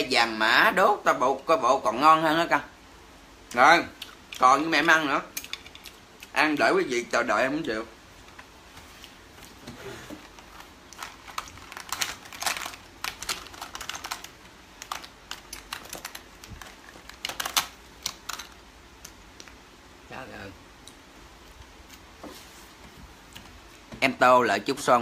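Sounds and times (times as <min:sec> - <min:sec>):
small objects clicking and tapping: 0:04.0 - 0:06.0, 0:10.9 - 0:19.6.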